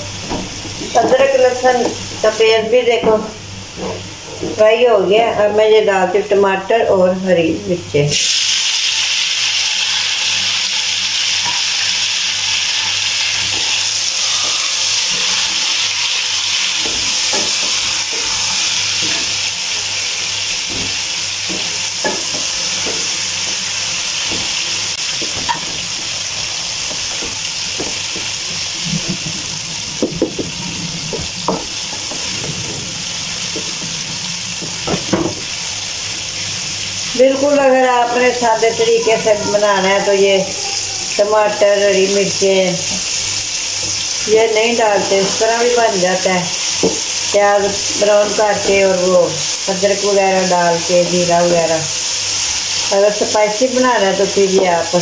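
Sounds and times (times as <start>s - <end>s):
vegetables sizzling in hot oil: 8.1s - 55.0s
wooden spoon knocking a pot: 26.8s - 28.4s, 30.0s - 32.9s, 34.6s - 35.5s.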